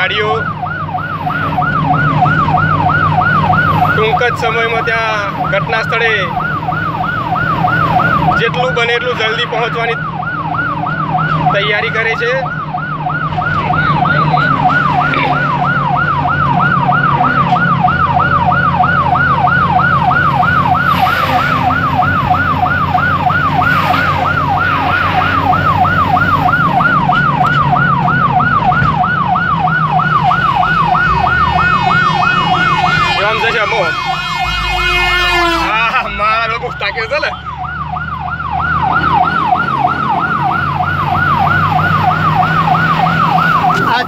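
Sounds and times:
electronic siren yelping: 0.0s - 44.0s
vehicle engine drone: 9.3s - 44.0s.

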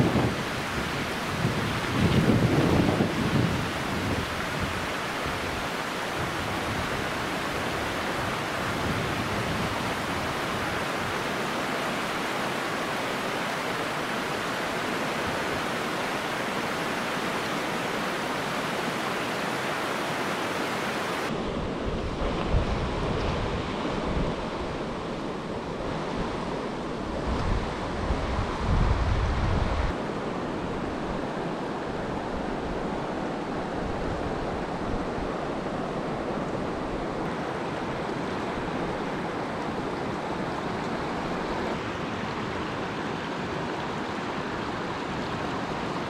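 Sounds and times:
wind rumble on microphone: 0.0s - 11.4s, 20.6s - 42.5s
creek water rushing over rocks: 0.0s - 28.5s, 29.9s - 46.0s.

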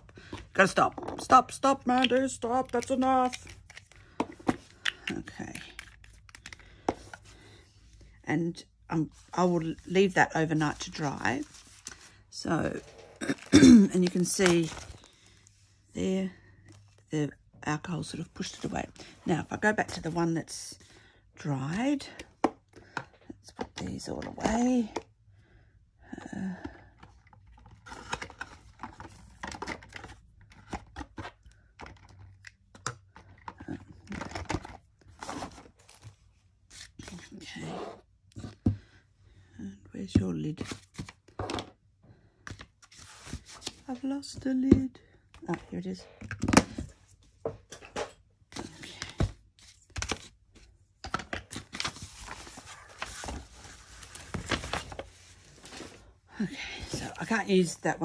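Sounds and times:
paper rustling: 51.6s - 56.1s.

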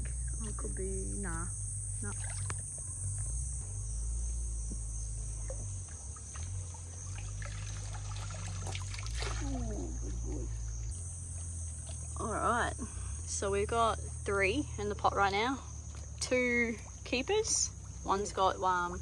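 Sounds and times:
high-pitched insect chorus: 0.0s - 19.0s
water splashing and streaming: 5.5s - 10.1s.

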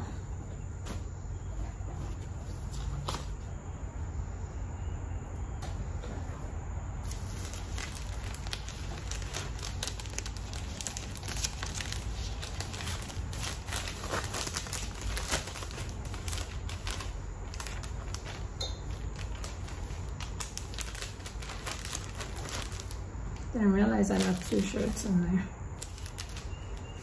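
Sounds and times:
plastic bags crinkling: 7.0s - 27.0s.

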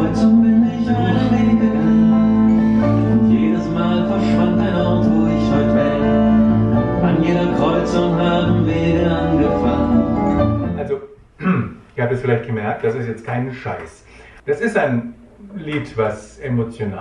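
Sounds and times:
person singing: 0.0s - 10.8s
acoustic guitar: 0.0s - 10.9s.

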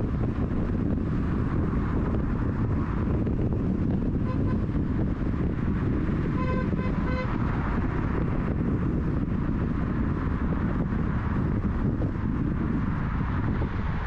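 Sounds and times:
car road and wind noise: 0.0s - 14.0s
car horn tooting: 4.2s - 4.8s, 6.2s - 7.4s.

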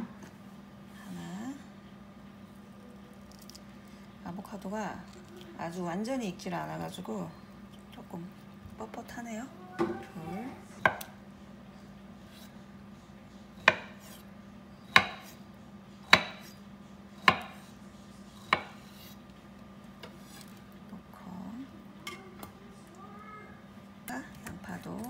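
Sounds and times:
knife chopping on wooden board: 13.6s - 14.2s, 14.9s - 15.4s, 16.1s - 16.6s, 17.2s - 17.7s, 18.4s - 19.2s.

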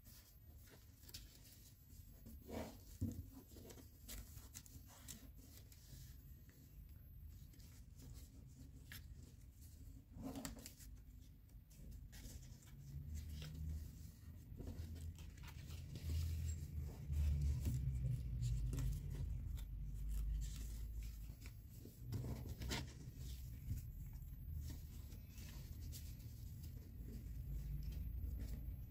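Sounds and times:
paper rustling and crackling: 0.0s - 6.7s, 7.3s - 28.9s.

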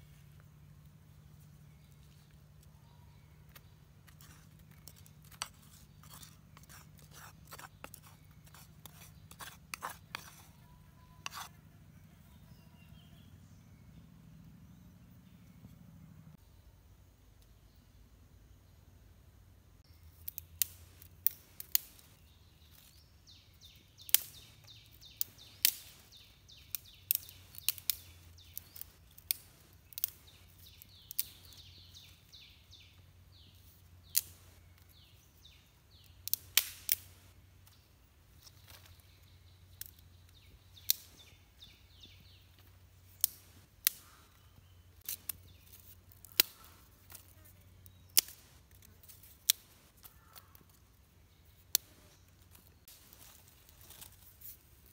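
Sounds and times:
dry twigs snapping: 20.2s - 22.9s, 24.0s - 32.2s, 34.1s - 34.9s, 36.0s - 39.0s, 39.7s - 41.3s, 42.6s - 44.4s, 45.0s - 50.8s, 51.6s - 54.9s.

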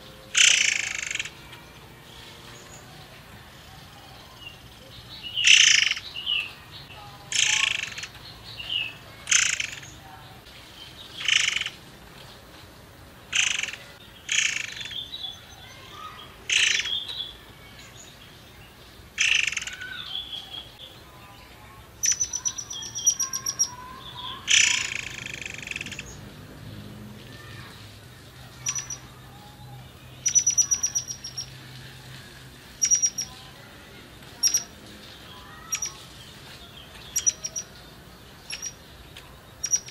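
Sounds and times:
caged bird calling: 0.0s - 12.0s, 13.3s - 39.9s
bird rattling trills: 0.3s - 1.4s, 13.3s - 15.0s, 19.2s - 20.0s, 22.0s - 26.1s, 28.6s - 29.1s, 30.2s - 31.6s, 32.7s - 33.4s, 35.4s - 36.2s, 38.4s - 38.8s, 39.6s - 39.9s.

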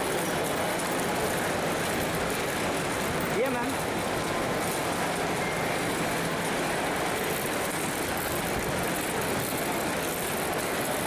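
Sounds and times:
busy airport terminal din: 0.0s - 11.0s.

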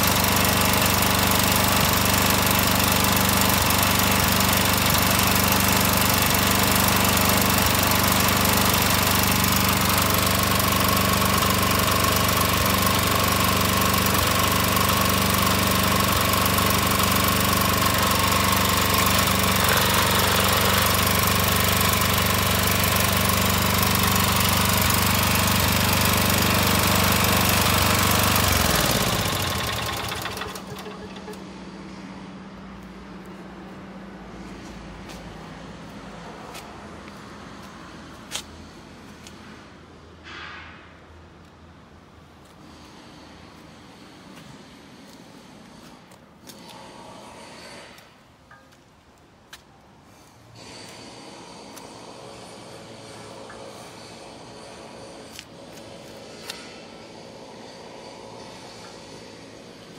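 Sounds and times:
tiller engine running: 0.0s - 31.8s
engine running down and stopping: 0.0s - 32.3s, 50.6s - 59.9s.

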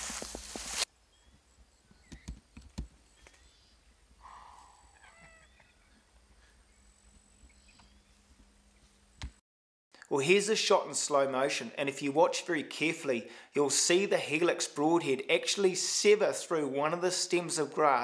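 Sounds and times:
footsteps through dry grass: 0.0s - 0.9s
warbling animal call: 4.2s - 5.8s.

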